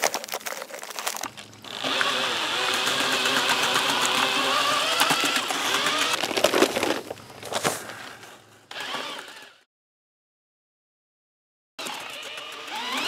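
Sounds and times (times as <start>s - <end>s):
cordless drill mixing mortar: 0.0s - 8.0s, 8.7s - 9.6s, 11.8s - 13.0s.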